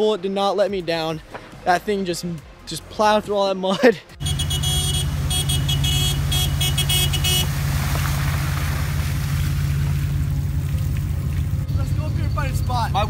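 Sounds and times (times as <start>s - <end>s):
van engine running under load: 4.2s - 13.0s
water splashing: 4.3s - 11.7s.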